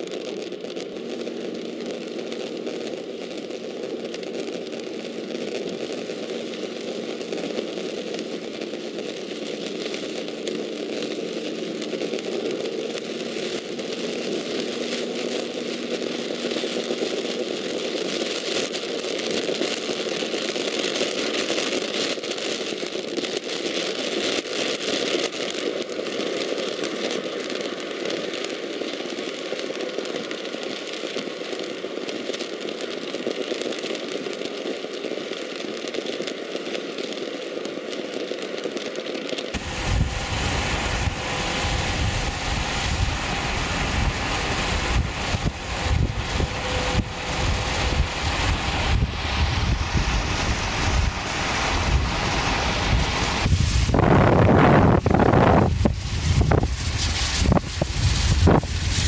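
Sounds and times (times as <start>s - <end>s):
tyres on wet pavement: 37.2s - 59.0s.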